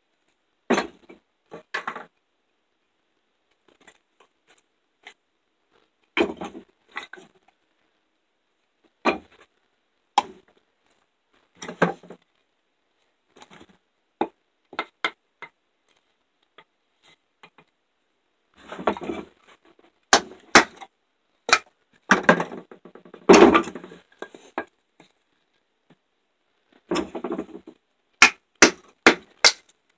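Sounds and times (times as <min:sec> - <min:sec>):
board cracking: 0:28.2 - 0:29.6.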